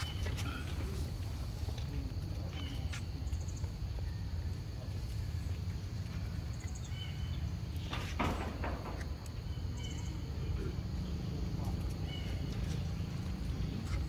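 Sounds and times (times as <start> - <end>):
faint bird chirps: 9.5 - 10.7.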